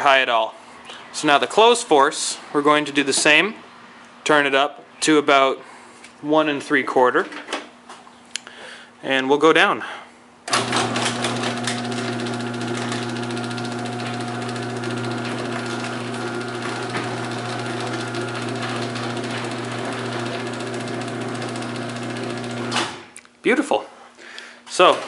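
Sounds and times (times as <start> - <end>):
garage door opener click: 10.5 - 23.2
garage door opener motor hum: 10.5 - 23.2.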